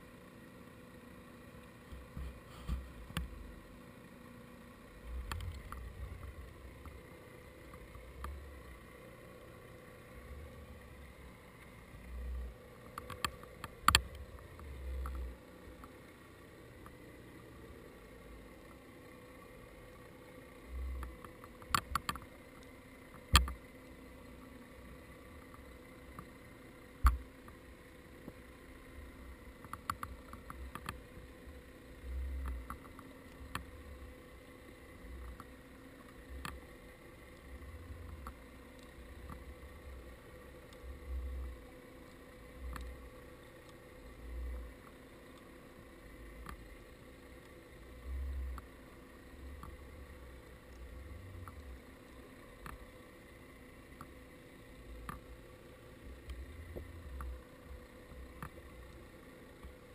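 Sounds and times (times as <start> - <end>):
faint steady hum: 0.0 - 59.9
faint clicks: 5.2 - 7.0, 11.6 - 16.0, 20.8 - 24.0, 29.6 - 31.3, 32.1 - 33.8, 35.1 - 40.0, 40.6 - 45.6, 46.2 - 48.7, 49.5 - 53.0, 53.9 - 54.2, 55.0 - 59.9.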